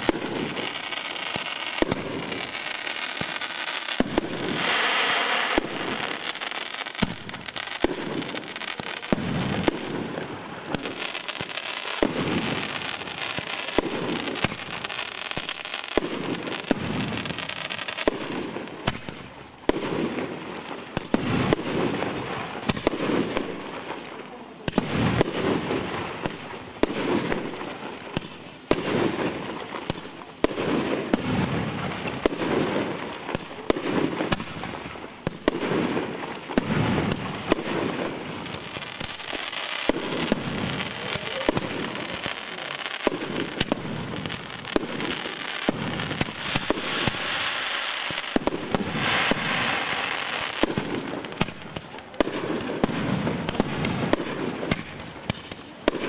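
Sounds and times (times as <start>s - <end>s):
fireworks bangs: 0.0s - 56.0s
fireworks crackling: 0.0s - 56.0s.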